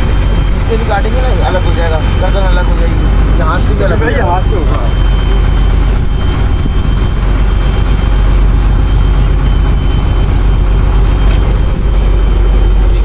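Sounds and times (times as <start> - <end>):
wind buffeting the microphone: 2.9 - 13.0.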